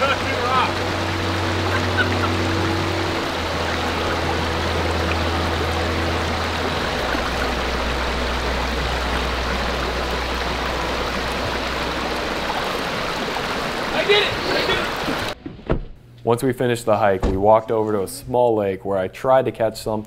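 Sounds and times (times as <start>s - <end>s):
stream water rushing: 0.0s - 15.4s.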